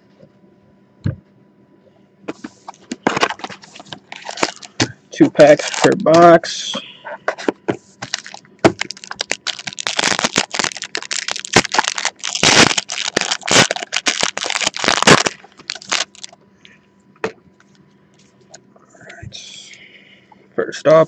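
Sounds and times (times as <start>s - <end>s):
foil wrapper crinkling: 2.6s - 6.2s, 8.0s - 16.4s.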